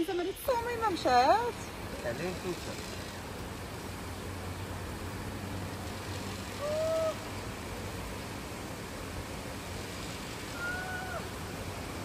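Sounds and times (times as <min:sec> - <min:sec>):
steady outdoor noise: 0:00.0 - 0:12.0
short arching call: 0:06.6 - 0:07.2.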